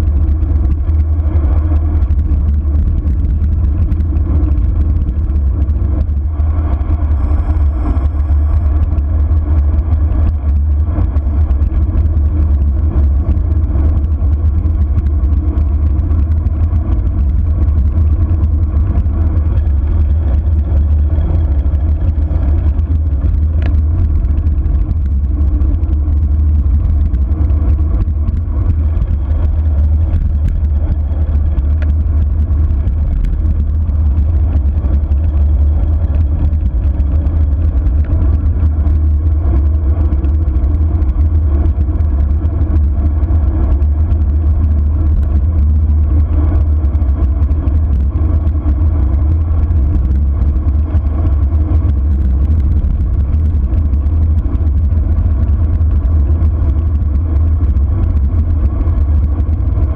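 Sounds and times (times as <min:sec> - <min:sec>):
wind buffeting microphone: 0:00.0 - 0:59.9.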